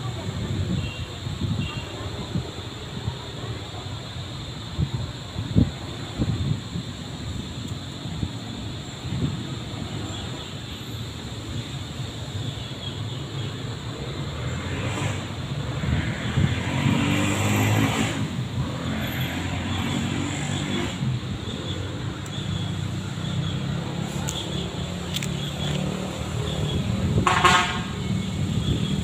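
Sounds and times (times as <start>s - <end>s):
road traffic rumbling: 0.0s - 29.0s
vehicle passing by: 14.2s - 27.2s.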